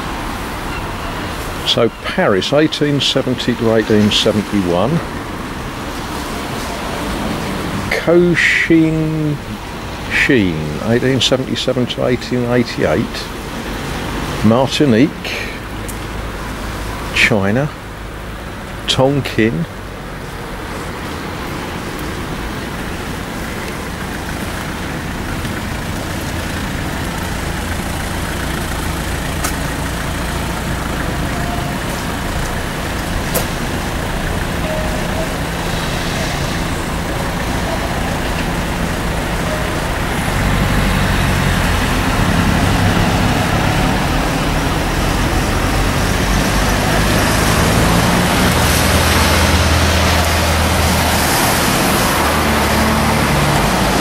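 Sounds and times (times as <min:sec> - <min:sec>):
traffic noise: 0:00.0 - 0:54.0
rain hiss: 0:20.0 - 0:54.0.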